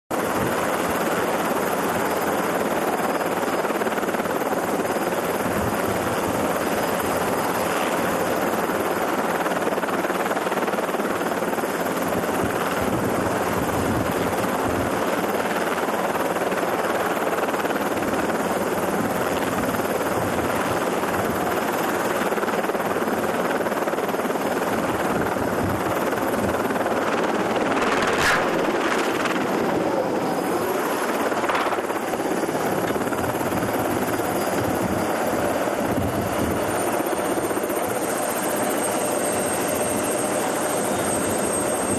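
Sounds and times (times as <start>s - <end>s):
helicopter engine and rotor drone: 0.1s - 41.9s
sharp crack: 27.8s - 29.4s.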